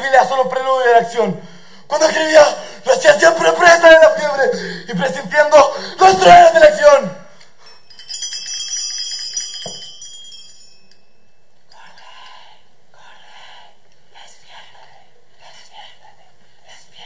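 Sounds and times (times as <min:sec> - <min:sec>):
hand bell jingling: 0:07.6 - 0:12.0.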